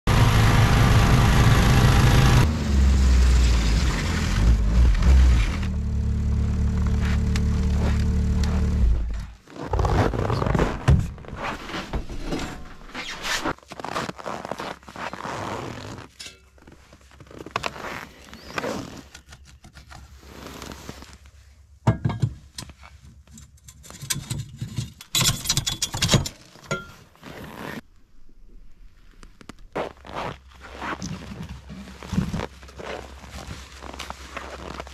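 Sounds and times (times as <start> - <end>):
metal clunks and scrapes: 10.8 - 13.5, 21.9 - 27.0.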